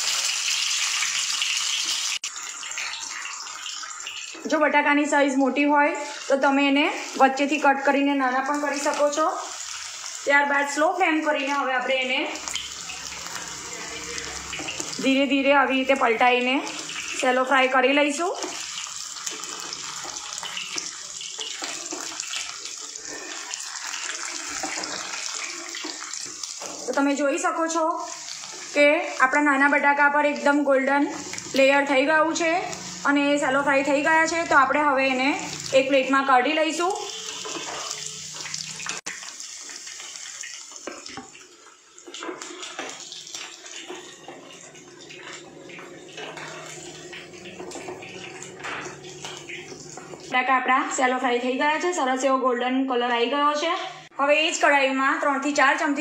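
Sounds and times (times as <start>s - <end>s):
potatoes sizzling in oil: 0.0s - 51.0s
spoon tapping and scraping pan: 37.3s - 38.5s.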